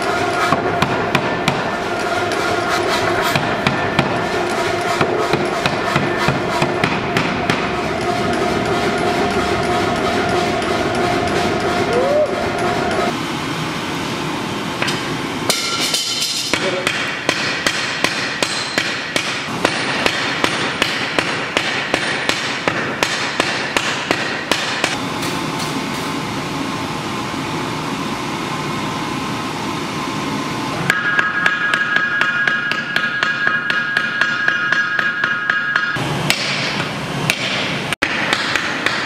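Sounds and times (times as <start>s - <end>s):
hammer striking steel on anvil: 0.0s - 9.1s, 14.8s - 26.1s, 30.9s - 39.0s
workshop noise: 0.0s - 39.0s
anvil ringing high tone: 30.9s - 36.0s.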